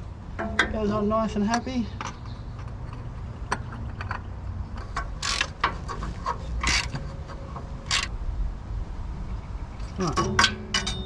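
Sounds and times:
oil filter scraping as screwed on: 2.2s - 8.1s.

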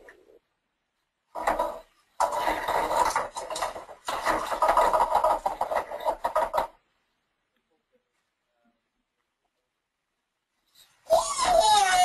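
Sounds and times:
toy shapes clattering and scraping: 1.1s - 6.9s, 10.6s - 12.0s.

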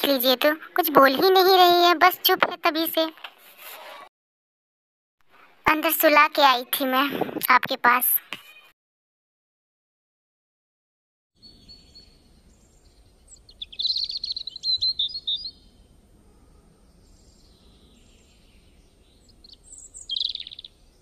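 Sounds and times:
birds chirping and twittering: 11.4s - 21.0s.

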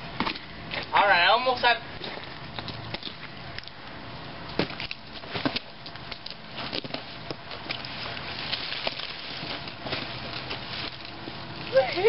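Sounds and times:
dry leaves rustling: 1.8s - 12.0s
branches cracking: 4.5s - 12.0s.

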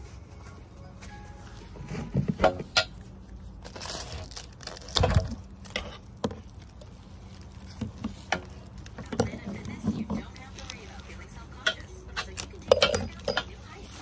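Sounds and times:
plastic wrap crinkling and tearing: 3.2s - 11.6s, 12.2s - 12.7s.

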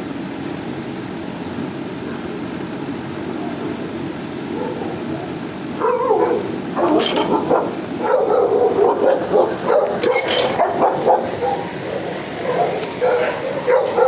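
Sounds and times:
steady background hum: 0.0s - 14.0s
dog barking: 4.5s - 5.0s, 5.8s - 14.0s.

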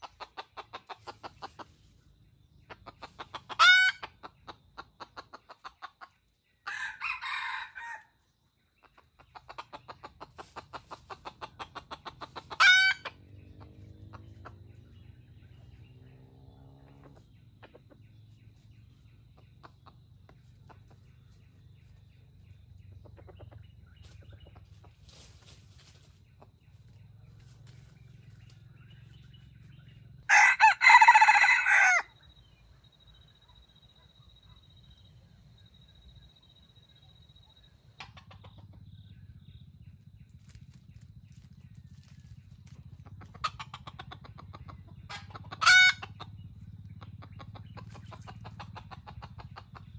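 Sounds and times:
rooster clucking and calling: 0.0s - 1.8s, 2.7s - 8.2s, 8.8s - 14.8s, 30.3s - 32.2s, 43.1s - 46.4s
rooster crowing: 6.6s - 8.1s, 30.3s - 32.2s.

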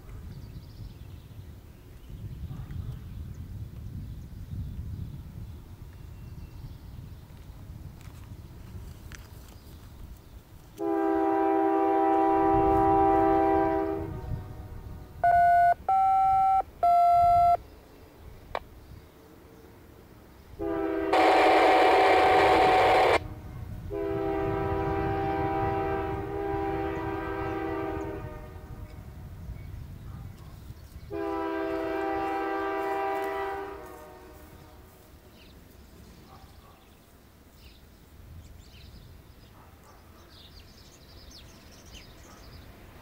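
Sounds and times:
train rumble: 7.2s - 15.9s, 16.6s - 36.3s
horn short blasts: 10.8s - 14.4s, 15.2s - 17.6s, 20.6s - 28.5s
locomotive air horn long blasts: 10.8s - 16.4s, 20.6s - 29.0s, 31.1s - 35.0s.

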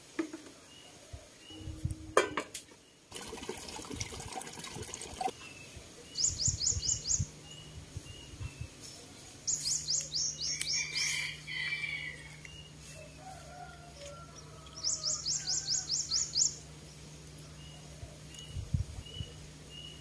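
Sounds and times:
birds chirping: 2.7s - 20.0s
water pouring from a spout: 3.1s - 5.3s.

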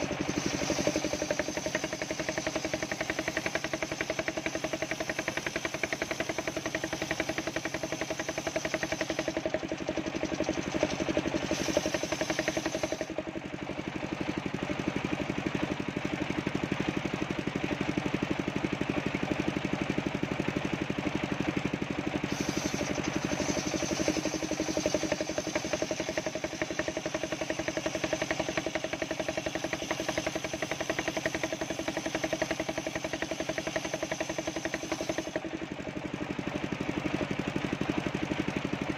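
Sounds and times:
saw blade cutting wood: 0.0s - 9.4s, 10.8s - 13.1s, 22.2s - 35.4s
engine knocking steadily: 0.0s - 38.9s.

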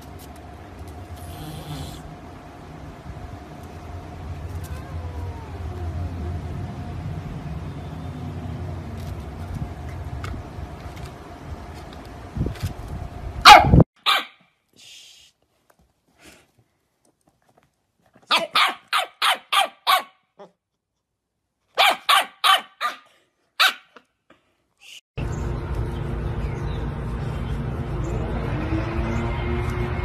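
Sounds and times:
puppy barking: 13.4s - 14.4s, 18.3s - 20.5s, 21.8s - 24.0s.

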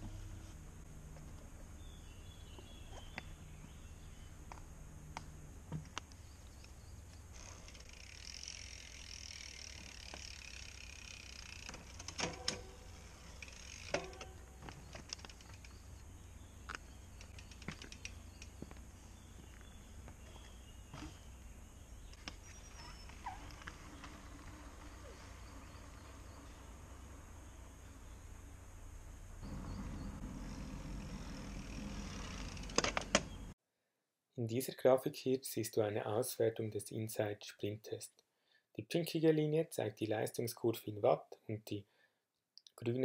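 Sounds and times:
bike clicks and knocks: 9.3s - 16.0s, 16.6s - 21.4s, 30.8s - 33.5s
faint bird chirps: 14.8s - 24.2s
low steady rumble: 23.5s - 33.5s.

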